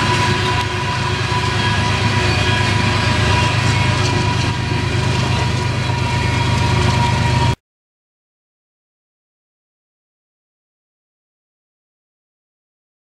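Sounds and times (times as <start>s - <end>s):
high whine: 0.0s - 7.6s
locomotive engine drone: 0.0s - 7.6s
train wheels rumbling on rails: 0.0s - 7.6s.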